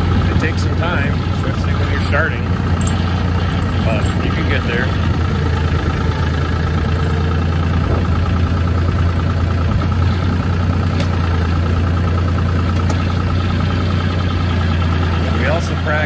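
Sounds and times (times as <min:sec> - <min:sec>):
tractor diesel engine running: 0:00.0 - 0:16.0.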